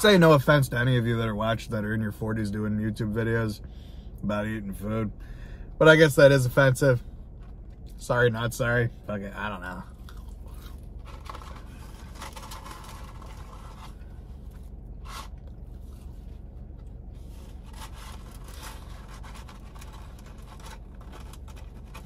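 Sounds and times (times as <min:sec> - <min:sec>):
paper packaging rustling: 0:11.0 - 0:16.2, 0:17.2 - 0:22.0.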